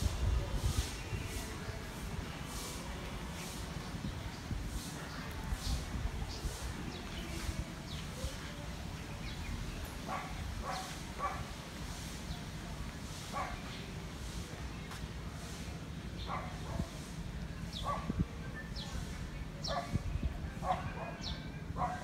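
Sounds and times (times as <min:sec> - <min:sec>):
dog barking: 0:10.1 - 0:11.5, 0:20.6 - 0:22.0.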